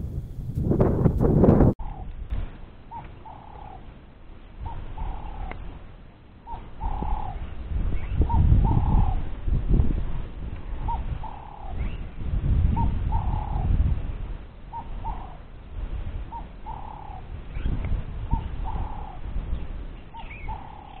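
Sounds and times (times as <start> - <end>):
wind rumble on microphone: 0.0 - 21.0
dove cooing: 2.9 - 3.9, 4.6 - 5.6, 6.5 - 7.5, 8.1 - 9.3, 10.7 - 12.0, 12.7 - 13.8, 14.7 - 15.5, 16.3 - 19.3, 20.1 - 21.0.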